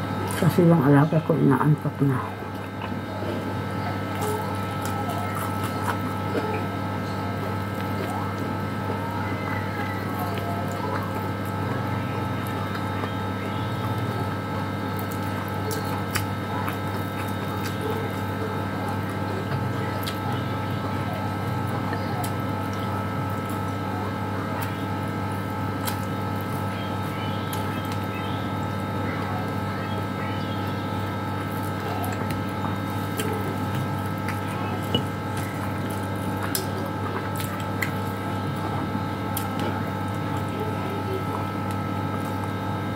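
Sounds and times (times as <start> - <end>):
eating and chewing: 0.0 - 42.9
electrical appliance hum: 0.0 - 42.9.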